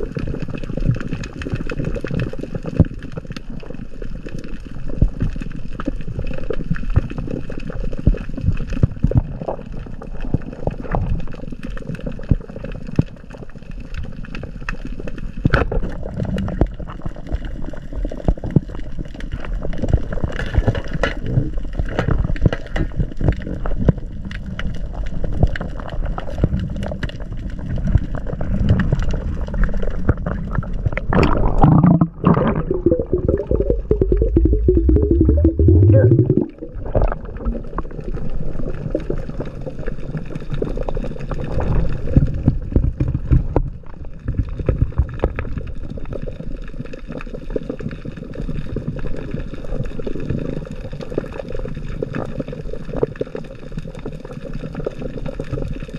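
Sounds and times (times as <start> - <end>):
underwater rush of water: 0.0 - 55.9
muffled rushing: 31.2 - 36.6
low hum rising in pitch: 31.7 - 36.7.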